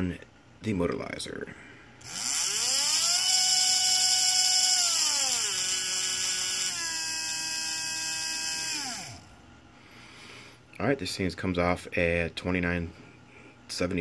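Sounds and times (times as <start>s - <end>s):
electric motor whine: 2.0s - 9.3s.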